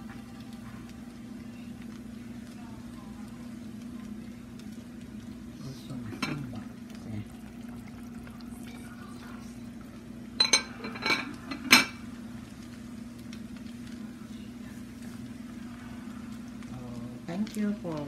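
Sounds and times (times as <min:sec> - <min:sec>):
low kitchen hum: 0:00.0 - 0:18.0
kitchenware clinking: 0:06.1 - 0:06.7, 0:10.4 - 0:12.0.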